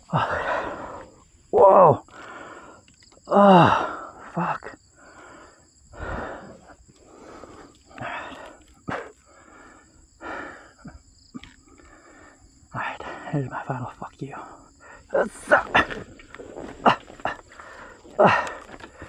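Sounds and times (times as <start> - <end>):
man breathing heavily: 0.0 - 19.0
man groaning: 1.6 - 2.0, 3.3 - 4.8, 15.1 - 16.0, 18.0 - 18.8.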